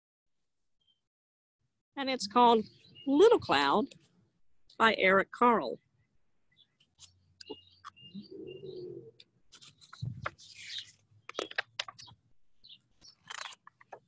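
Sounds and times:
small birds chirping: 2.0s - 4.1s, 4.7s - 14.0s
dove cooing: 8.1s - 9.2s
book pages turning: 9.5s - 12.2s, 12.9s - 14.0s.

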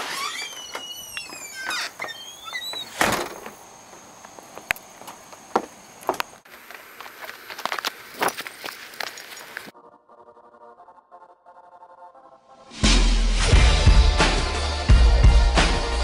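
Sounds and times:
footsteps on wooden deck: 0.0s - 9.7s.

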